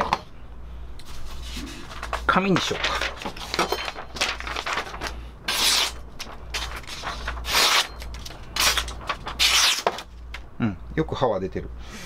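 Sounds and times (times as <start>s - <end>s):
knife slicing paper: 4.6s - 6.0s, 6.6s - 8.0s, 8.6s - 10.0s.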